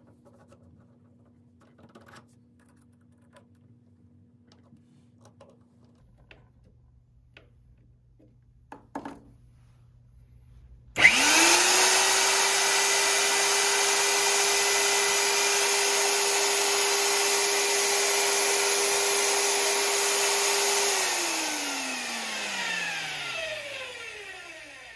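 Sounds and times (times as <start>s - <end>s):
drill press motor whining: 11.0s - 24.9s.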